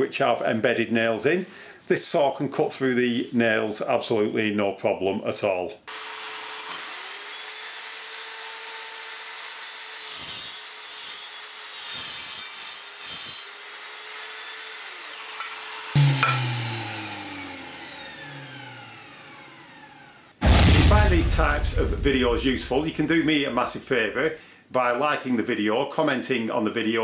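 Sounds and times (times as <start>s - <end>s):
circular saw cutting timber: 5.9s - 20.3s
saw blade whining down: 14.8s - 20.4s.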